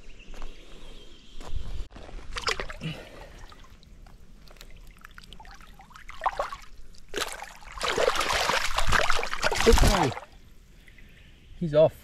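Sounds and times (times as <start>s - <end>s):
water sloshing: 2.2s - 11.0s
creek water trickling: 2.2s - 11.5s.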